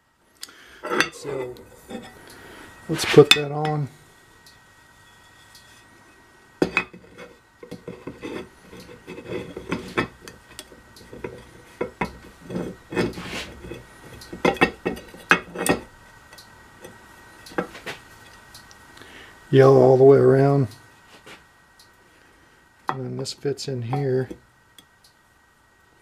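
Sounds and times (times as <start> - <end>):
steel plate set on housing: 6.6 - 15.9.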